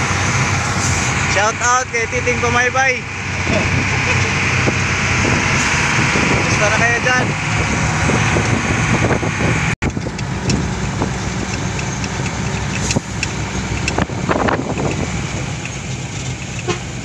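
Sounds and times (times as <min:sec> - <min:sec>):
truck engine running: 0:00.0 - 0:17.0
metal body rattling: 0:09.8 - 0:17.0.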